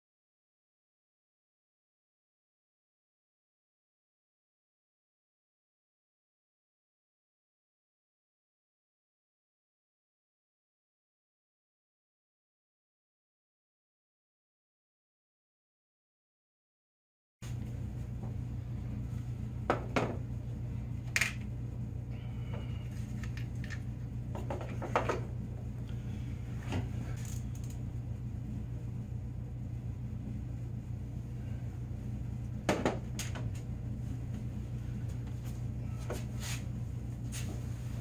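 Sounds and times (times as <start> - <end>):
steady low hum: 17.4 - 38.0.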